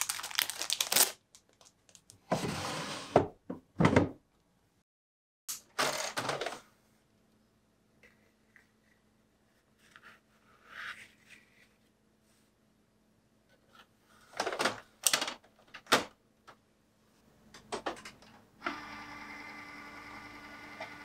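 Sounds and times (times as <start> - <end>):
printer feed mechanism whirring: 18.6 - 21.0.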